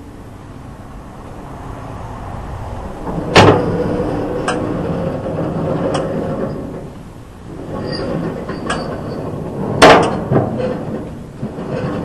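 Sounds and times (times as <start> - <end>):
loud metal clank: 3.0 - 6.9, 7.7 - 12.0.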